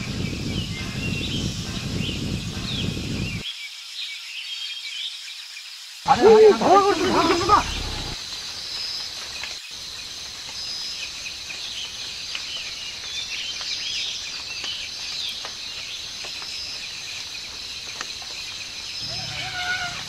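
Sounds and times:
insect drone: 0.0s - 20.0s
birds chirping: 6.1s - 8.2s, 18.6s - 20.0s.

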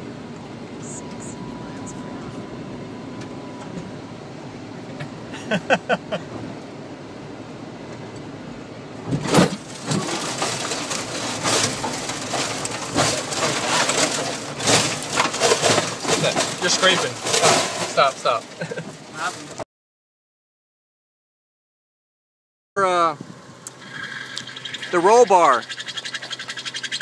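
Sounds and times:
vehicle driving on dirt: 0.0s - 19.6s, 23.2s - 27.0s
knocks and rattles: 9.1s - 18.1s.

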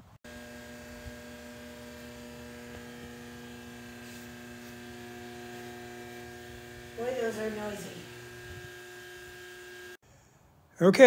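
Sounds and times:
electrical hum: 0.0s - 10.0s.

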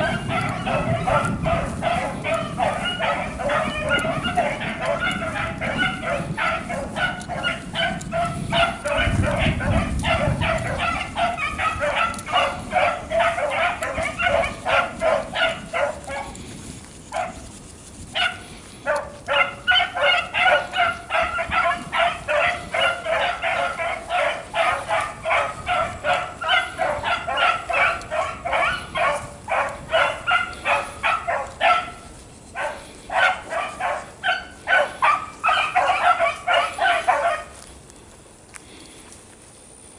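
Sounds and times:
beagles baying: 0.0s - 37.8s.

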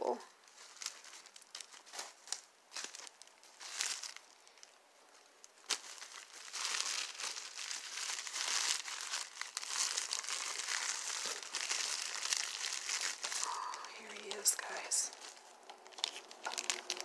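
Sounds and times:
tissue paper crinkling: 0.4s - 17.0s.

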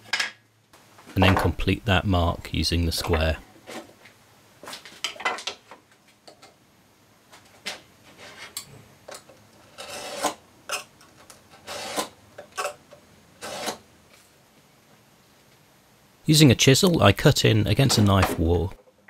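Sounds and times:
knife scraping across wood: 9.7s - 10.9s.

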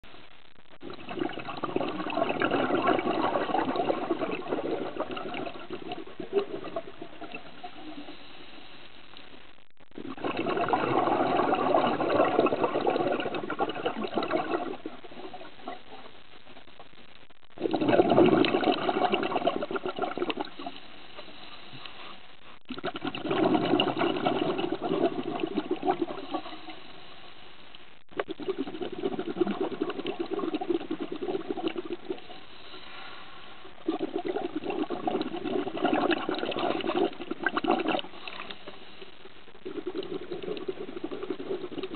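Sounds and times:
diver exhaling bubbles: 0.8s - 8.2s, 10.0s - 15.9s, 17.6s - 20.8s, 22.7s - 26.8s, 28.2s - 32.3s, 33.8s - 38.6s, 39.6s - 41.9s.

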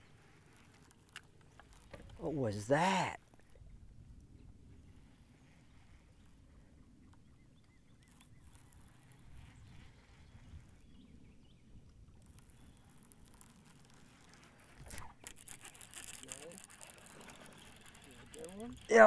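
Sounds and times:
faint ticks: 0.0s - 2.2s, 11.9s - 19.0s
lake water against boat hull: 0.0s - 19.0s.

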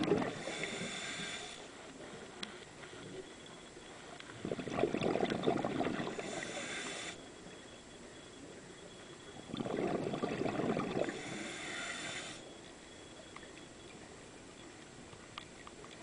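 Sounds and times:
underwater bubbles gurgling: 0.0s - 2.2s, 4.2s - 7.2s, 9.4s - 12.4s.

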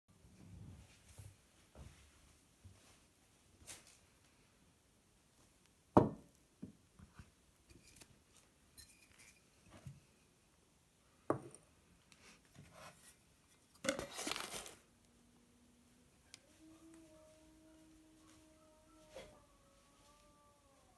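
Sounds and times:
paper rustling: 12.6s - 14.9s.

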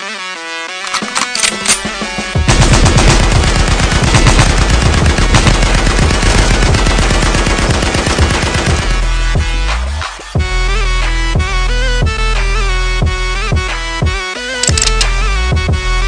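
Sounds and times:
automatic gunfire: 0.9s - 9.0s.

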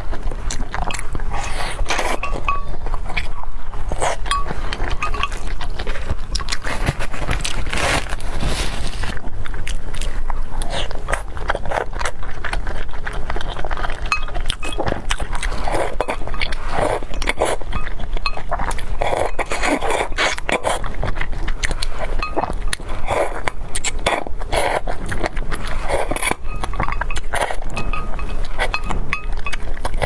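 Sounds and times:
wet slurping and chewing: 0.0s - 30.0s
chopsticks clinking on glass bowl: 0.8s - 3.4s, 4.0s - 5.9s, 14.1s - 14.9s, 15.5s - 20.6s, 22.0s - 22.9s, 26.2s - 30.0s.

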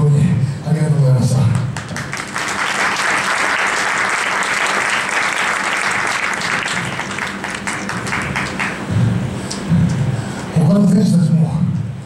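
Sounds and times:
audience clapping: 1.5s - 8.9s.

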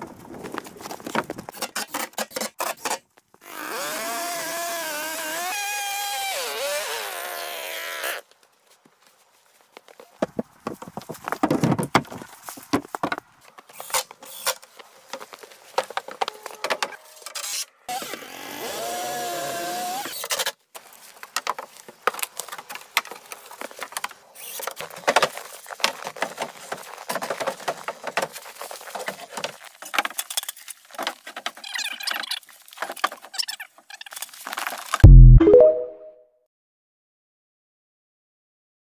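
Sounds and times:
knocks and taps of wood and tools: 10.2s - 13.2s.

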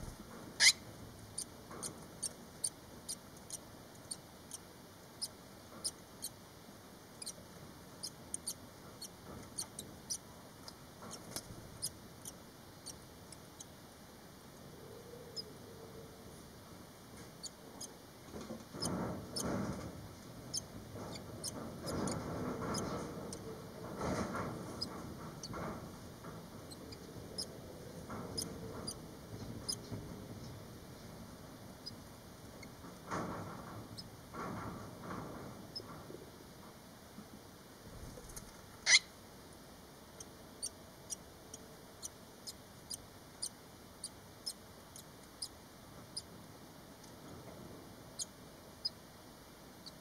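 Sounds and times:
nestlings giving high peeps: 0.0s - 0.8s, 8.0s - 11.2s, 38.9s - 39.1s.

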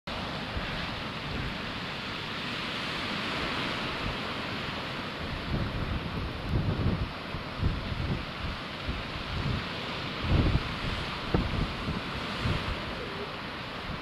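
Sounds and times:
sea surf: 0.1s - 14.0s
wind buffeting microphone: 5.2s - 14.0s.

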